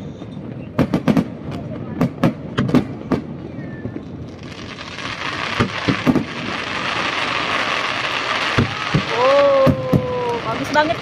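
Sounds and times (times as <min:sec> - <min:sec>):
fireworks booms: 0:00.1 - 0:11.0
fireworks crackling hiss: 0:03.4 - 0:11.0.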